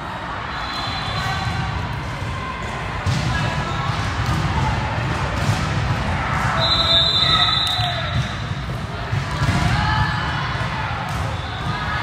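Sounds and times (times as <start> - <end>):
referee's whistle: 0.5 - 1.5, 6.6 - 8.3
volleyball bouncing: 1.4 - 12.0.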